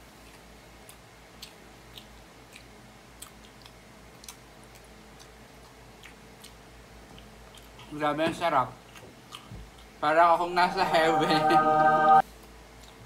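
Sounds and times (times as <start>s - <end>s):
person chewing rice: 0.0s - 8.0s, 8.8s - 10.0s, 12.3s - 13.0s
low steady hum: 0.0s - 13.0s.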